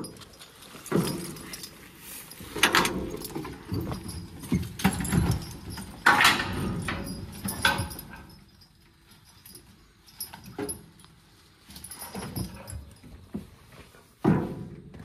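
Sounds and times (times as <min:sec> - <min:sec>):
metal clanks: 0:00.0 - 0:08.7
harness hardware rattling: 0:00.0 - 0:13.3.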